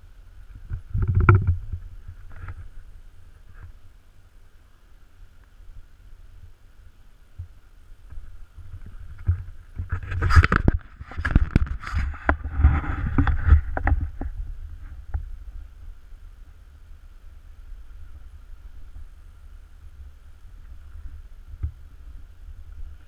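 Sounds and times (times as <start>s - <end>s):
faint hiss: 0.0s - 23.0s
camera handling knocks and scrapes: 9.2s - 14.3s
low rumble: 10.5s - 23.0s.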